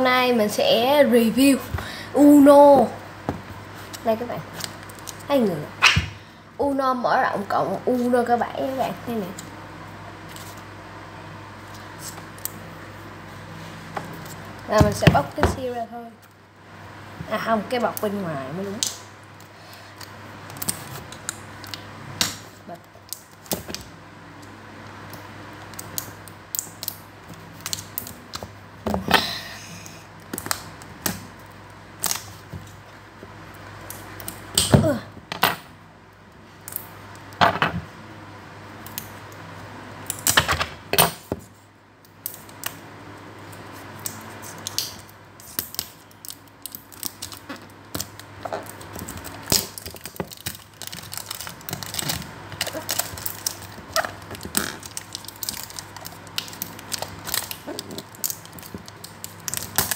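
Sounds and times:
steady low hum: 0.0 - 59.9
plastic wrap crinkling and scratching: 45.4 - 59.9.

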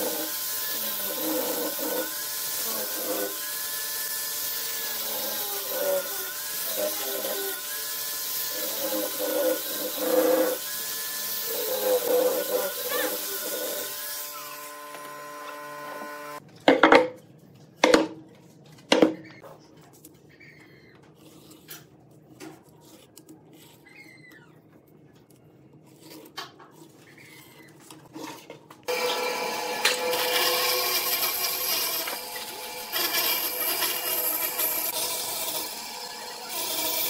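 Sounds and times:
angle grinder sanding: 0.0 - 16.4, 28.9 - 37.0
band saw cutting wood: 0.0 - 16.4, 28.9 - 37.0.

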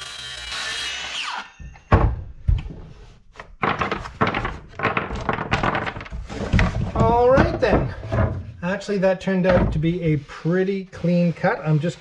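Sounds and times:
wooden knocks and clatters: 1.6 - 8.7, 9.4 - 10.2.

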